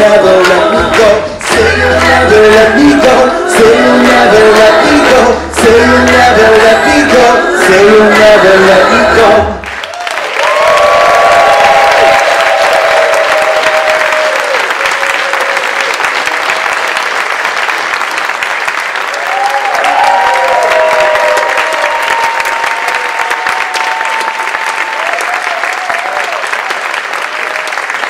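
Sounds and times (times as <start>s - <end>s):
audience clapping: 0.0s - 8.8s, 9.6s - 28.0s
whoops and cheers: 9.8s - 15.9s, 19.1s - 26.6s.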